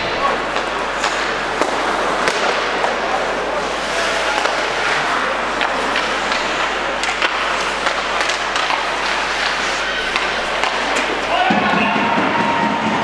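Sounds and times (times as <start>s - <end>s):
arena noise: 0.0s - 13.0s
skates scraping on ice: 0.0s - 13.0s
sticks clicking on puck: 3.8s - 12.6s.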